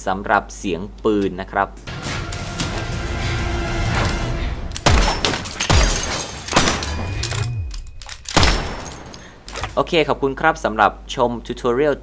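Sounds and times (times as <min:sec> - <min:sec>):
dramatic background music: 0:01.9 - 0:09.1
loud hit sound effect: 0:01.9 - 0:09.4.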